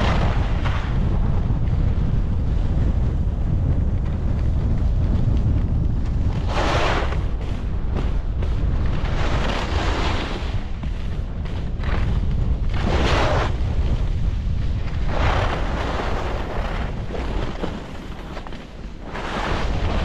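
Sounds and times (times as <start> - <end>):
wind buffeting microphone: 0.0 - 20.0
ski edges scraping snow: 6.3 - 14.1, 14.8 - 20.0.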